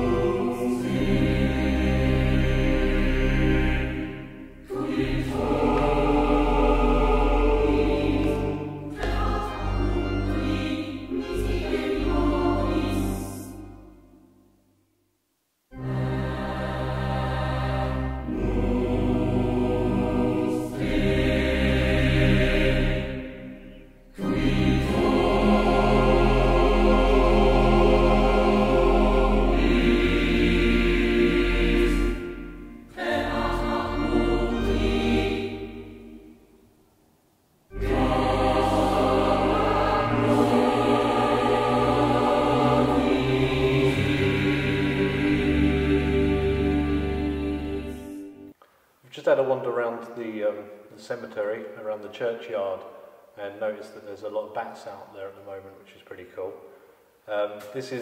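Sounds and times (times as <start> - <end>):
choir singing held notes: 0.0 - 14.4, 15.7 - 36.8, 37.7 - 48.6.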